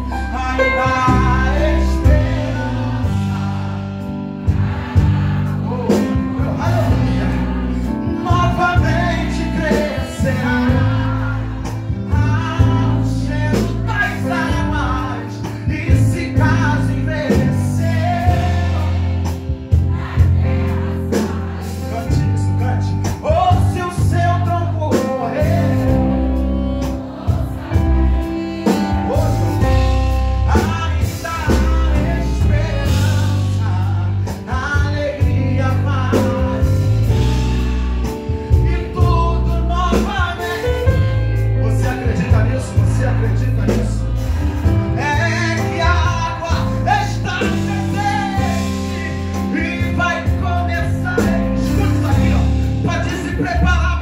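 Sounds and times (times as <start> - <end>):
man singing gospel song: 0.0 - 4.2, 5.2 - 27.0, 27.6 - 54.0
instrumental accompaniment with bass: 0.0 - 54.0.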